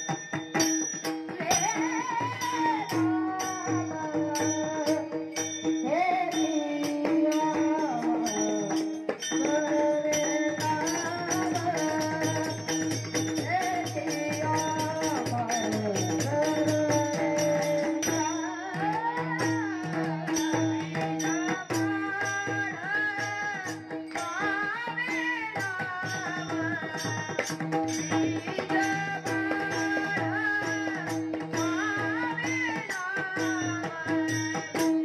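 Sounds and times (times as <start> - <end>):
hand cymbals clashing: 0.0 - 2.2
hand drum beating: 0.0 - 35.0
boy singing: 1.0 - 35.0.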